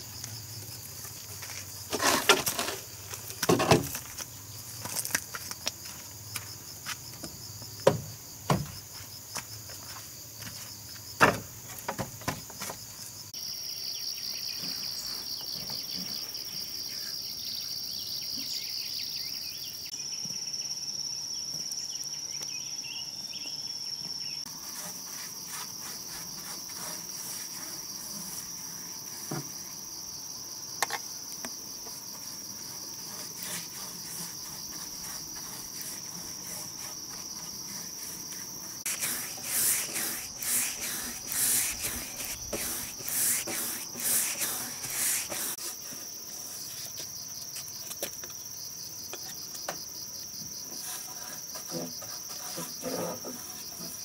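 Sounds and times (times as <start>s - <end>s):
insects droning: 0.0s - 54.0s
paintbrush swishing on wood: 24.5s - 29.4s, 32.1s - 46.9s.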